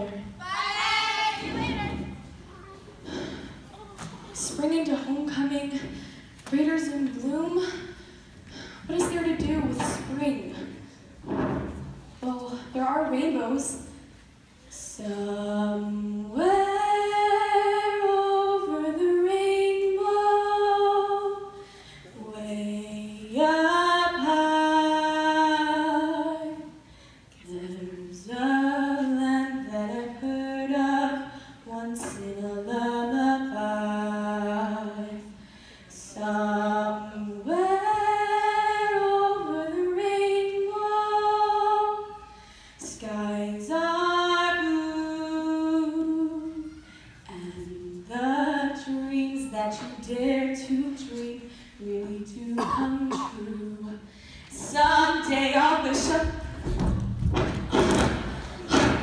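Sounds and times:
girl singing unaccompanied: 0:00.0 - 0:05.8, 0:36.0 - 0:56.8.

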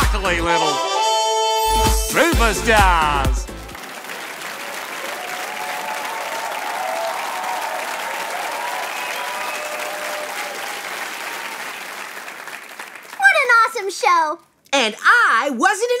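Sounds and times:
audience applause: 0:03.7 - 0:13.6
people cheering: 0:03.8 - 0:13.4.

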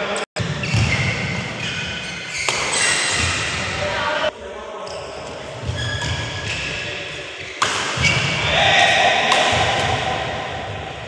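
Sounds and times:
rackets striking shuttlecock: 0:02.4 - 0:03.4, 0:07.5 - 0:08.4, 0:09.2 - 0:10.3.

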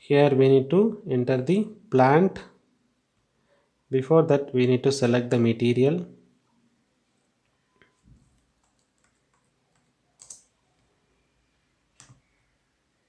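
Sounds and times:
computer mouse and keyboard clicks: 0:08.2 - 0:10.9.

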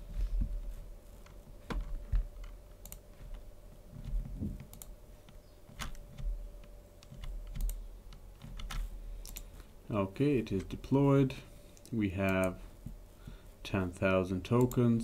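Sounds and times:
faint steady hum: 0:00.0 - 0:15.0
computer keyboard clicks: 0:02.4 - 0:03.1, 0:04.6 - 0:05.0, 0:07.0 - 0:09.5.

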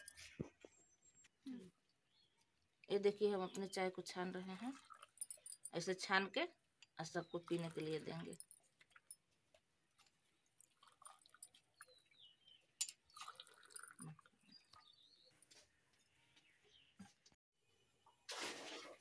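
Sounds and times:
tea trickling: 0:03.0 - 0:06.1, 0:07.0 - 0:14.8.

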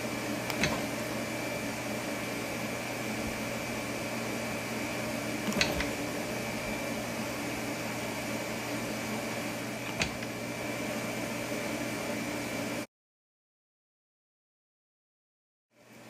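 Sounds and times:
machine hum with high whine: 0:00.0 - 0:12.9, 0:15.8 - 0:16.0.

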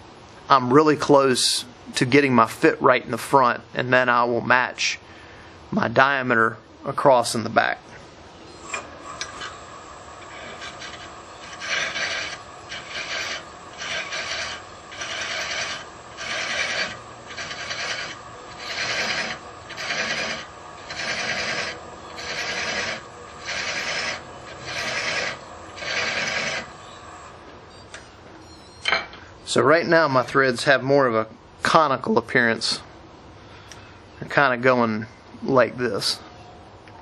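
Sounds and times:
thread chaser scraping wood: 0:08.6 - 0:27.0
wood lathe humming: 0:08.6 - 0:27.4.

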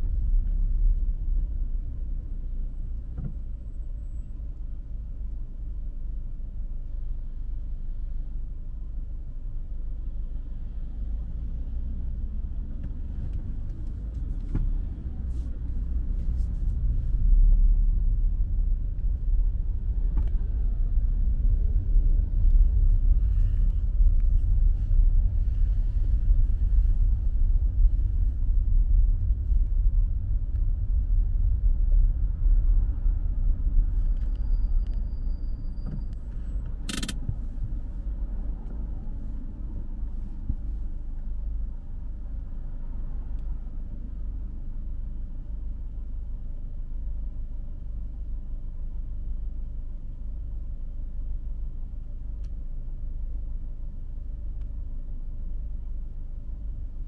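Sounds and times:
road and engine rumble: 0:00.0 - 0:57.0
sharp click: 0:36.8 - 0:37.3.

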